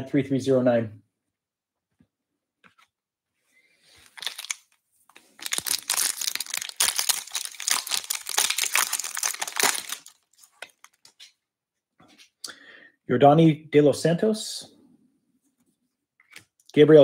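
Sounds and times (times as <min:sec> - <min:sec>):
plastic wrapper tearing and crinkling: 0:04.0 - 0:11.3.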